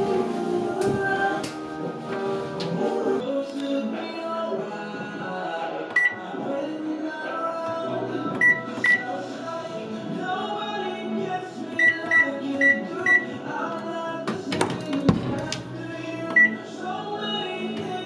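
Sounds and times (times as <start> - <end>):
background music: 0.0 - 18.0
washing machine control panel beeps: 6.0 - 6.2, 8.4 - 9.1, 11.8 - 13.3, 16.3 - 16.6.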